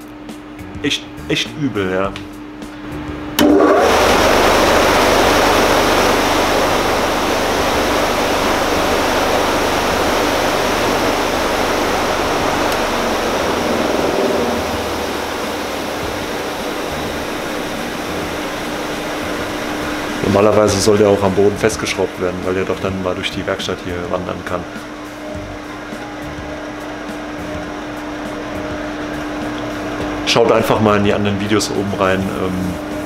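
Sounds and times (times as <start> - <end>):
faint motor hum: 0.0 - 33.0
polishing machine whirring: 3.4 - 22.7.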